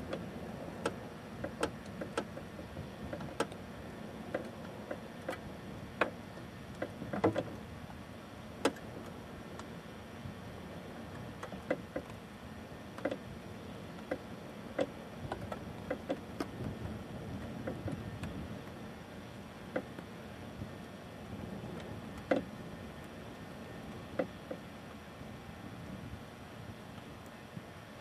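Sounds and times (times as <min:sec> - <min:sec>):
low fire rumble: 0:00.0 - 0:28.0.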